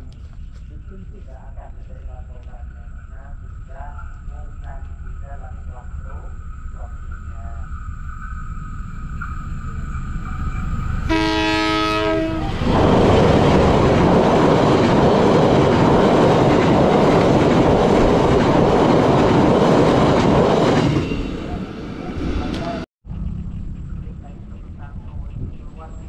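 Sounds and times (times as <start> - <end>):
train rumbling over steel bridge: 0.0 - 26.0
train horn blast: 11.0 - 12.8.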